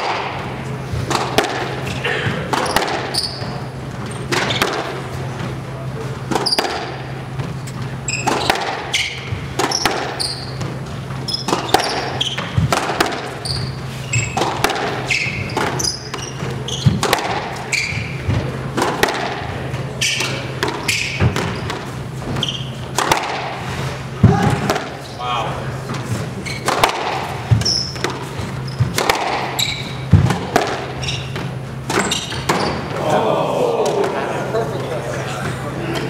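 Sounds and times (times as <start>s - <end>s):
squash ball hitting rackets and walls: 0.0s - 33.1s
steady low hum: 0.0s - 36.0s
shoes squeaking on wooden floor: 1.8s - 4.6s, 6.3s - 18.6s, 19.8s - 23.0s, 25.8s - 33.0s.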